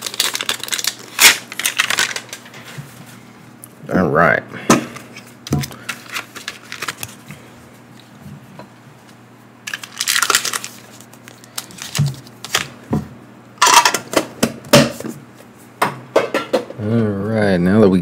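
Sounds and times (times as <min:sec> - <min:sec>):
plastic packs crinkling: 0:00.0 - 0:02.6, 0:05.7 - 0:07.2, 0:09.6 - 0:12.8.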